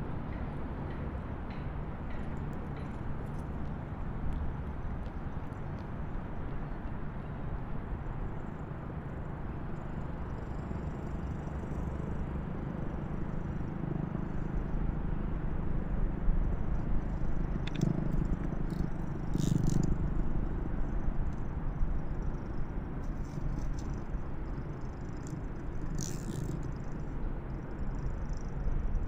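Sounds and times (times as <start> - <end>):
sharp clicks: 17.6 - 19.9.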